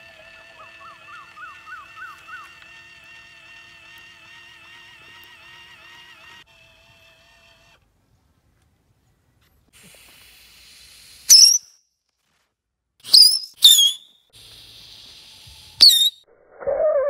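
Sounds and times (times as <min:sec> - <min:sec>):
firework rocket hissing: 0:09.7 - 0:11.7, 0:13.1 - 0:16.2
firework rocket whistle: 0:11.2 - 0:11.8, 0:13.0 - 0:14.3, 0:15.4 - 0:16.2.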